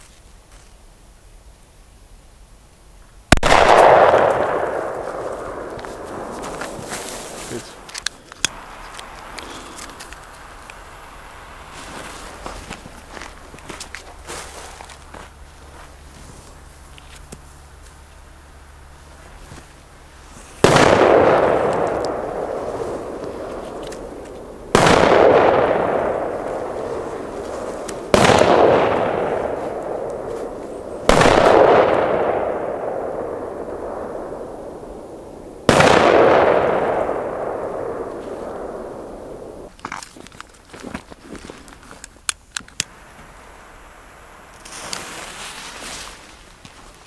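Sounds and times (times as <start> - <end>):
firecrackers exploding: 3.3 - 17.3, 19.1 - 39.8
rolling echo: 3.3 - 39.8.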